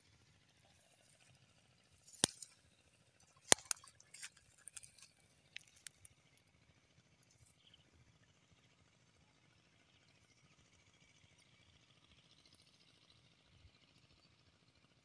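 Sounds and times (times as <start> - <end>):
sharp clicks and light ticks: 2.1 - 6.5.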